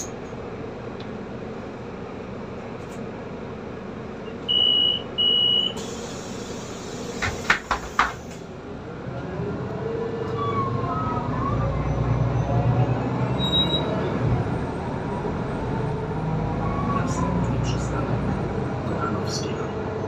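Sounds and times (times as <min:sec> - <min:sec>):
bus diesel engine: 0:00.0 - 0:20.0
bus doors clacking: 0:05.6 - 0:08.5
hiss of air: 0:05.8 - 0:08.4.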